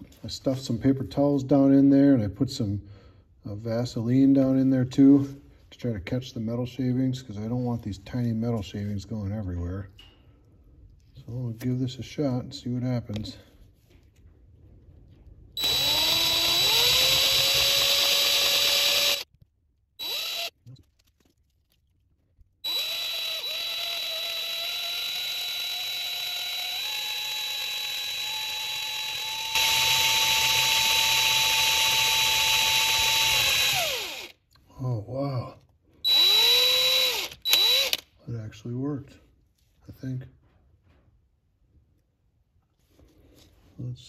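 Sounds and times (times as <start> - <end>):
cordless drill drilling: 15.6 - 19.3, 20.0 - 20.6, 22.6 - 34.4, 36.1 - 38.1.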